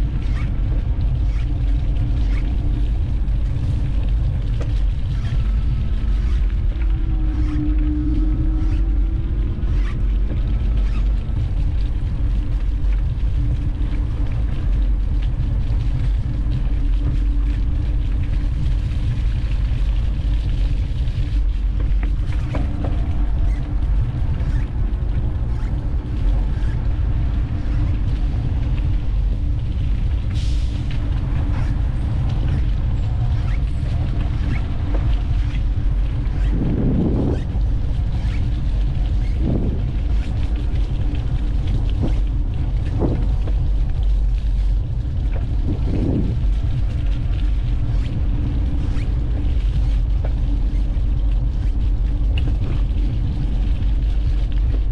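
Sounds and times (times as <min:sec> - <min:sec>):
faint steady hum: 0:00.0 - 0:54.9
wind buffeting microphone: 0:00.0 - 0:54.9.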